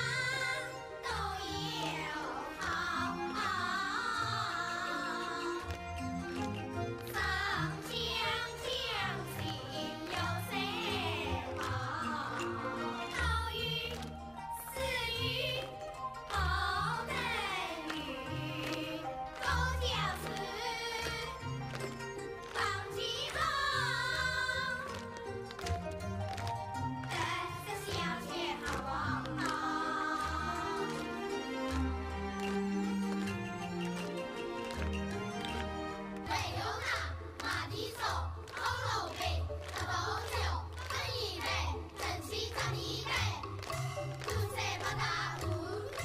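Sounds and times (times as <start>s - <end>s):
children singing opera style: 0.0s - 5.8s, 7.0s - 21.7s, 22.4s - 25.6s, 27.0s - 31.8s, 36.2s - 46.0s
instrumental accompaniment with bass: 10.0s - 37.0s.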